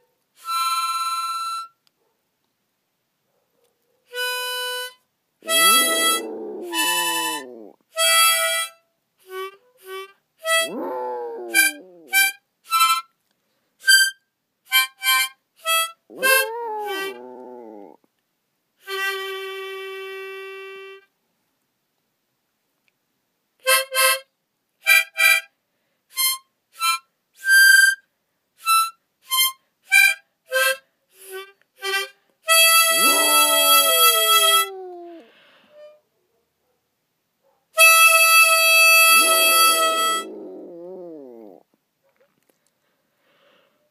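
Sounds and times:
harmonica playing: 0:04.2 - 0:07.4, 0:29.3 - 0:34.6, 0:37.8 - 0:40.2
dog howling: 0:05.4 - 0:07.8, 0:10.6 - 0:12.2, 0:16.1 - 0:18.0, 0:32.9 - 0:35.3, 0:39.0 - 0:41.6.

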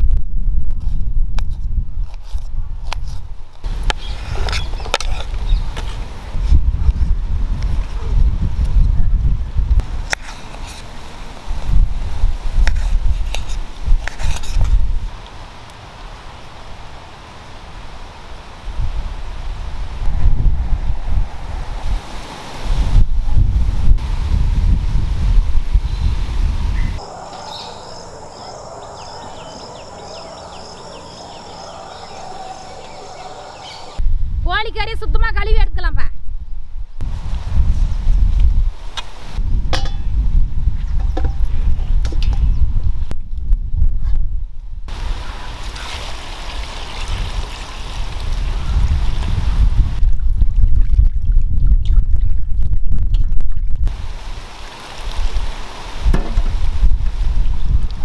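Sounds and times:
wind buffeting microphone: 0:00.0 - 0:15.2, 0:18.6 - 0:58.0
bird chirping: 0:26.8 - 0:34.0
insects trilling: 0:27.0 - 0:34.0.

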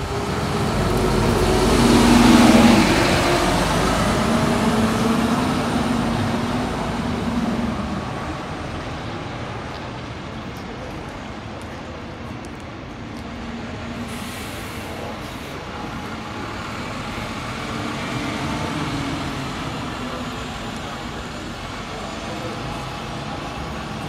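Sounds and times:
train rumbling past: 0:00.0 - 0:10.3.

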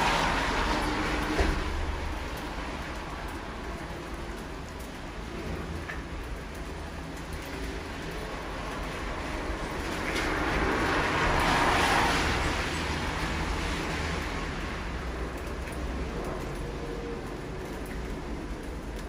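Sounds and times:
car tyres hissing on wet road: 0:00.0 - 0:03.5, 0:08.5 - 0:15.2
steady falling rain: 0:00.0 - 0:19.0.

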